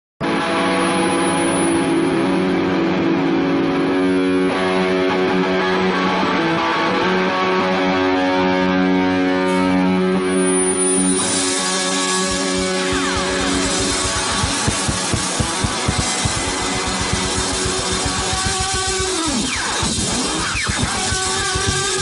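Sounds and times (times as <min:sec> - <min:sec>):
electric guitar sustained chords: 0:00.2 - 0:22.0
live rock band playing: 0:10.9 - 0:22.0.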